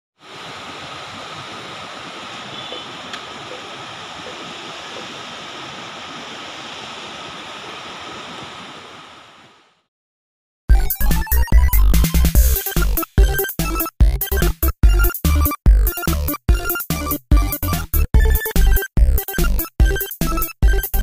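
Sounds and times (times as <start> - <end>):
river water rushing over rocks: 0.2 - 9.6.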